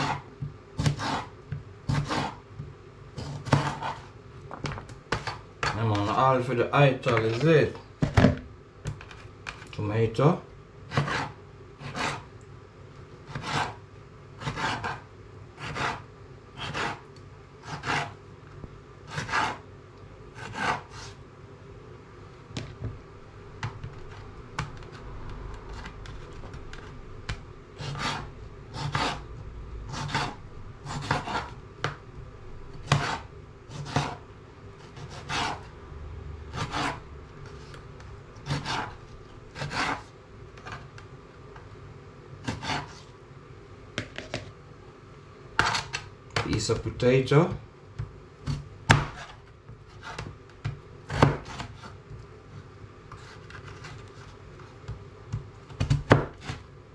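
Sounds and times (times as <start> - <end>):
knife slicing on chopping board: 0.8 - 1.3, 1.9 - 2.4, 3.2 - 4.1, 10.9 - 12.3, 13.3 - 13.8, 14.4 - 15.0, 16.6 - 17.0, 17.6 - 18.2, 20.4 - 21.2, 27.8 - 29.2, 29.9 - 31.6, 32.8 - 34.2, 34.8 - 35.7, 38.4 - 40.8, 45.6 - 46.0, 48.5 - 50.3.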